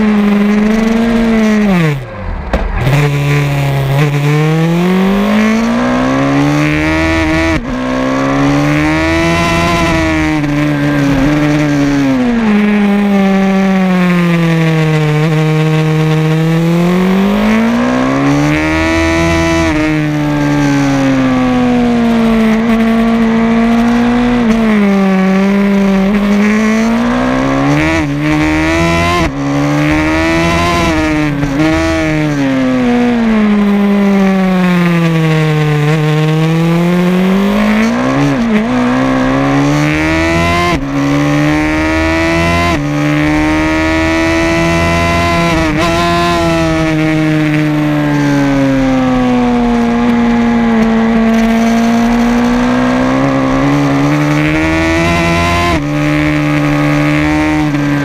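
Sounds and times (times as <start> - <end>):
race motorcycle engine: 0.0 - 58.0.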